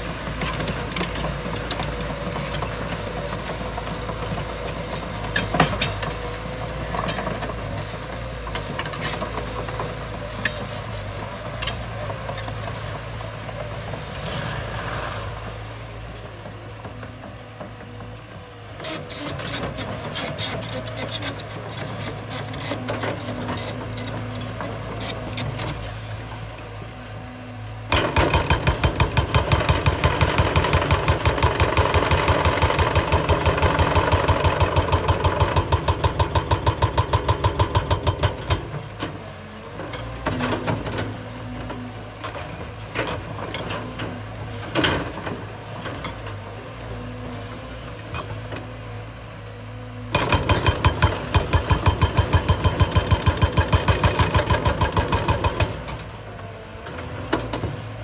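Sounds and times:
diesel engine running: 0.0 - 58.0
hydraulic breaker pounding rock: 27.9 - 39.2, 50.1 - 56.1.

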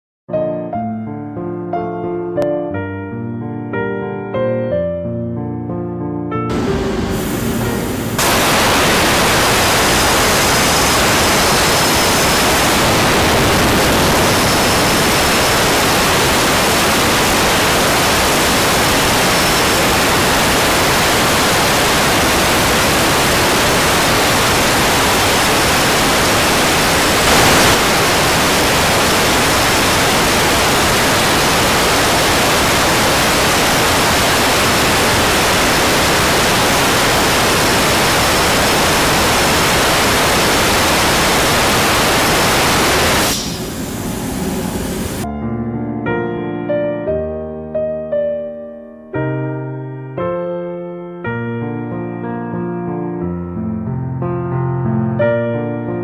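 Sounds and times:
plasma torch cutting steel hiss: 6.5 - 45.2.

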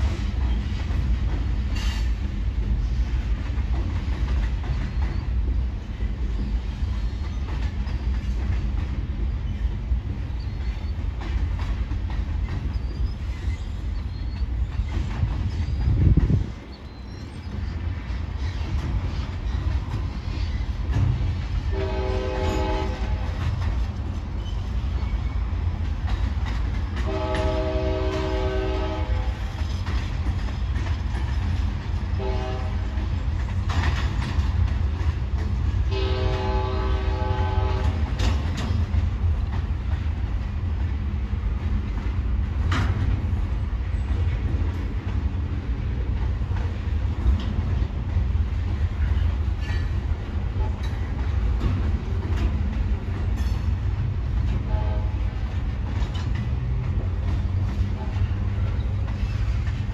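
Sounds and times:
clattering train wheels: 0.0 - 59.9
freight train cars rumbling: 0.0 - 59.9
locomotive air horn blasts: 21.7 - 23.4, 27.0 - 29.4, 32.2 - 32.9, 35.9 - 38.1, 54.7 - 55.3.

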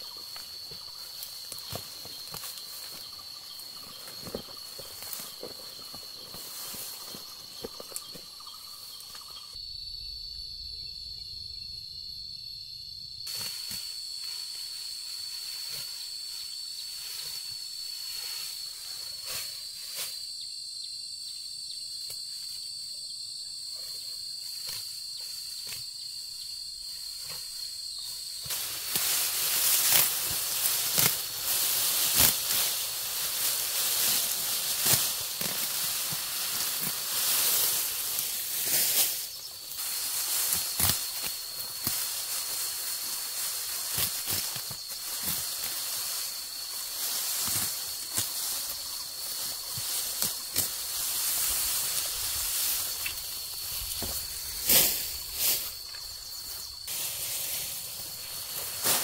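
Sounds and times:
rustling and scraping: 0.0 - 9.4, 27.2 - 59.0
insects droning: 0.0 - 59.0.

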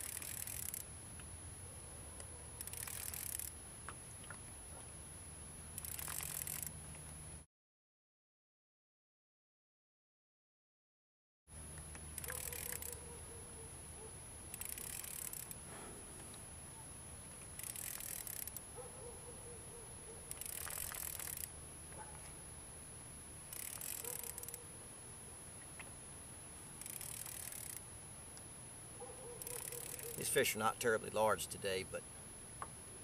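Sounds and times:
fishing reel buzzing: 0.0 - 1.0, 2.2 - 3.6, 5.7 - 6.9, 11.8 - 13.1, 14.4 - 15.6, 17.4 - 18.7, 20.3 - 21.6, 23.4 - 24.7, 26.7 - 27.9, 29.4 - 30.5.

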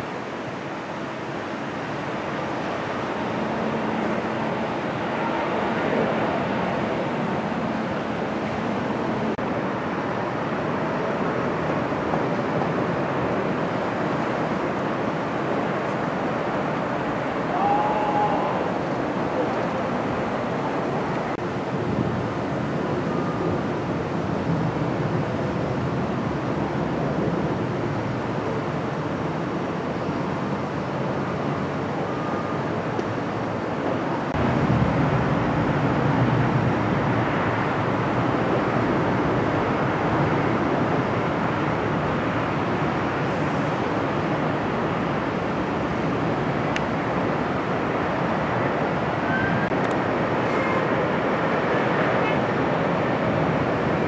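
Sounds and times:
distant jet engines rushing: 0.0 - 54.0.

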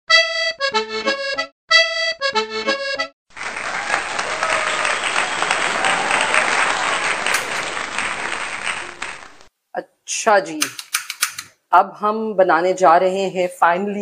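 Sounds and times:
kitchen noise hiss: 6.8 - 9.5.

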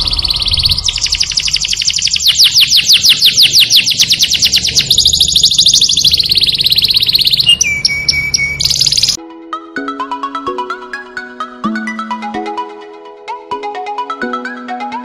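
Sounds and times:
canary singing trills: 0.0 - 9.2.

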